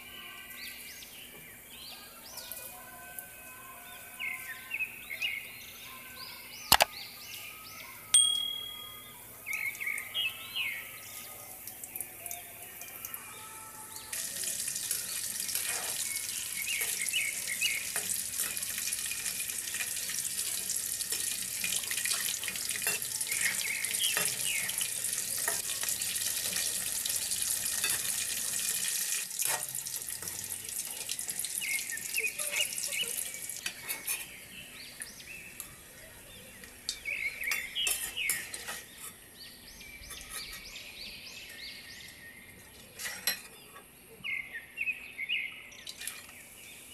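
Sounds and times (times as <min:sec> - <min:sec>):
chicken deep-frying in oil: 0:09.4 - 0:39.2, 0:45.8 - 0:46.9
skimmer scraping metal wok: 0:15.4 - 0:17.2.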